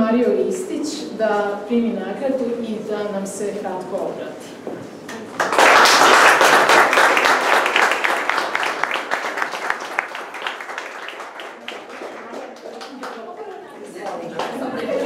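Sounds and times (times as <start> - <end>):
audience applauding: 5.1 - 15.0.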